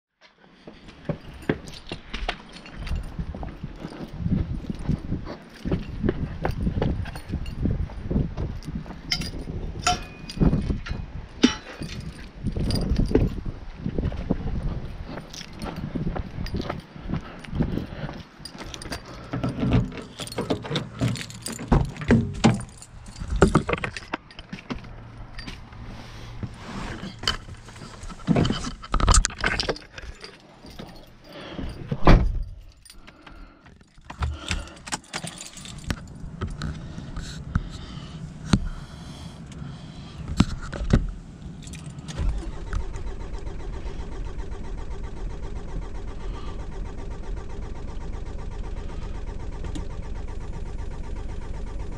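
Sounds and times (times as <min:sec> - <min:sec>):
keys jangling: 0:00.9 - 0:08.0, 0:08.6 - 0:13.5, 0:14.8 - 0:25.8, 0:27.0 - 0:38.5, 0:40.4 - 0:42.5
car engine running: 0:34.1 - 0:51.9.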